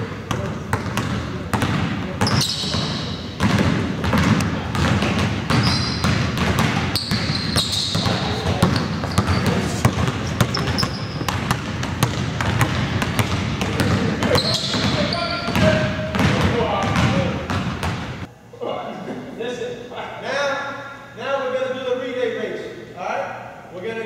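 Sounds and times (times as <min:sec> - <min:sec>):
basketballs bouncing on hardwood: 0:00.2 - 0:18.3
sneaker squeaks: 0:02.2 - 0:18.1.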